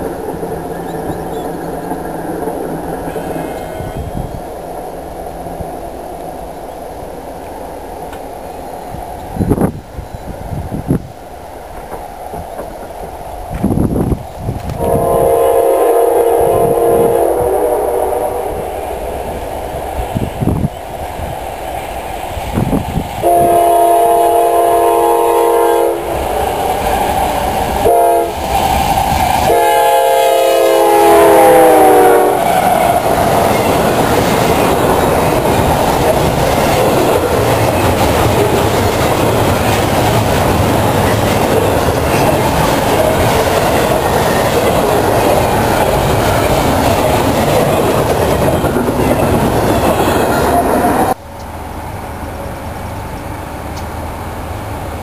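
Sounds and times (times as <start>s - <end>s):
train wheels clattering: 11.6s - 13.9s, 26.0s - 51.2s
train air horn blasts: 14.8s - 18.8s, 23.2s - 26.3s, 27.8s - 28.4s, 29.4s - 32.5s.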